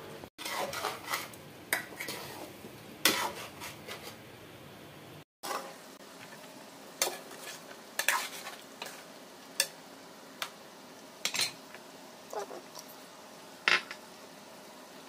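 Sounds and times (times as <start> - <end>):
metal spoon scraping frying pan: 0.4 - 4.2, 7.0 - 9.0
sauce sizzling: 5.4 - 15.0.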